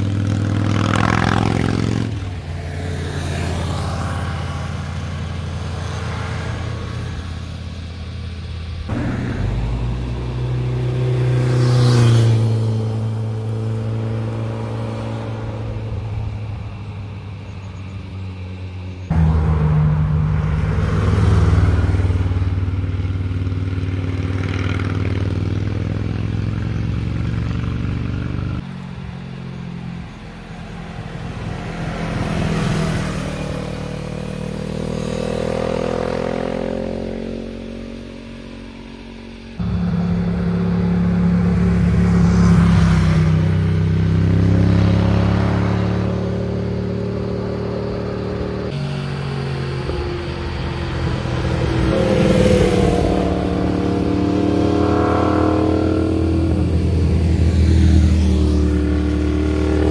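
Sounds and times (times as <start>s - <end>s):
motorcycles passing by: 0.0s - 59.9s.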